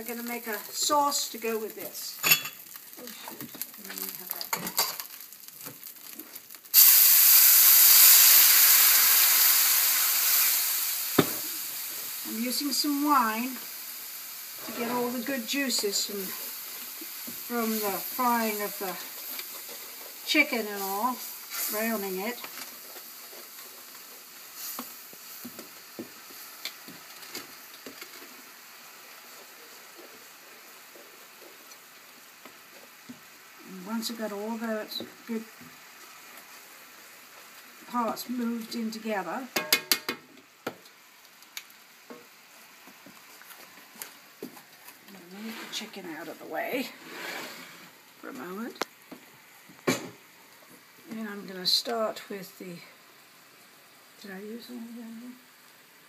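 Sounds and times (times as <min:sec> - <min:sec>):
wine sizzling in hot skillet: 0:00.0 - 0:56.0
tongs scraping and clicking on pan: 0:02.2 - 0:06.2.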